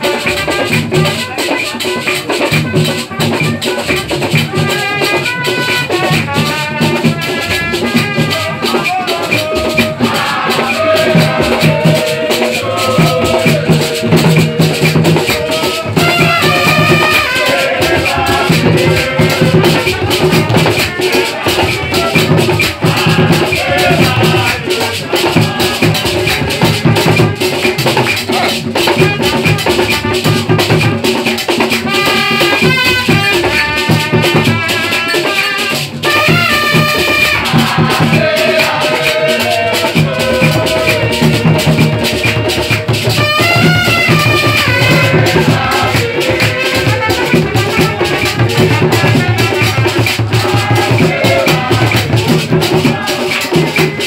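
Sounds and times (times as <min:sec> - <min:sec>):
hand drums beating: 0:00.0 - 0:54.0
voices singing: 0:03.5 - 0:54.0
shakers rattling: 0:07.6 - 0:29.8.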